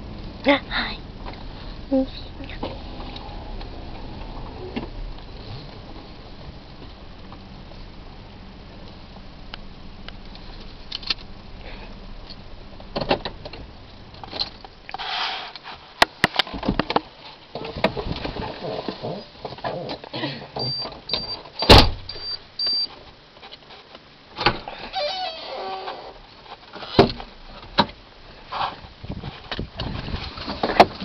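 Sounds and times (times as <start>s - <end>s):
car engine humming: 0.0s - 15.7s
car door clunk: 20.6s - 22.2s
car warning chime beeps: 20.6s - 22.9s.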